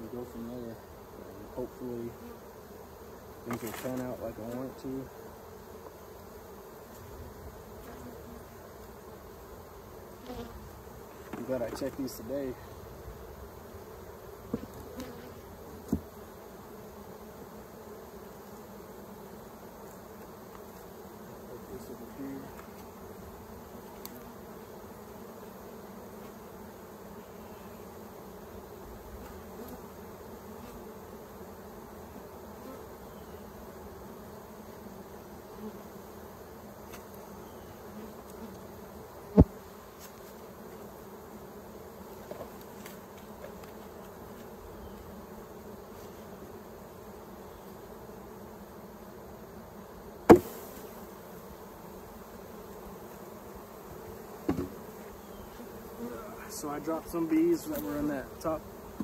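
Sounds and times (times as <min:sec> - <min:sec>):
honeybees buzzing: 0:00.0 - 0:59.0
wooden hive frames knocking: 0:39.3 - 0:39.6, 0:50.2 - 0:50.6, 0:54.4 - 0:55.0.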